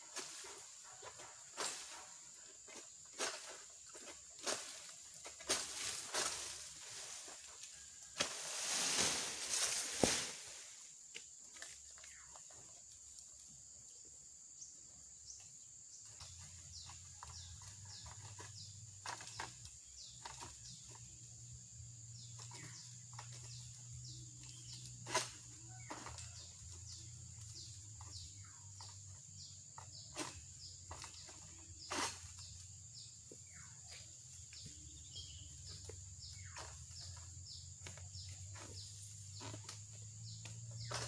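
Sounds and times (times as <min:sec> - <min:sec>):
birds chirping: 0:14.6 - 0:41.0.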